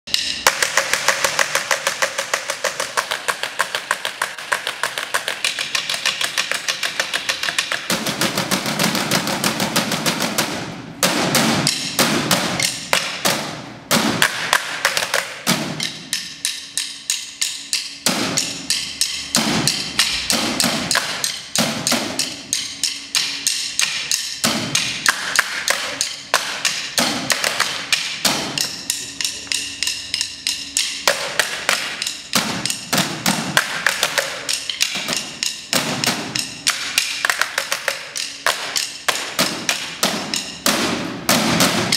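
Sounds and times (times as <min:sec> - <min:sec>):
drumsticks clicking on chairs: 0:22.2 - 0:40.8.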